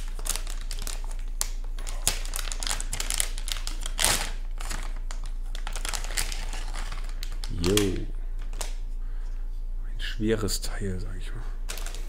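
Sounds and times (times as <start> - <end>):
plastic bag crinkling: 0.0 - 8.8, 11.7 - 12.0.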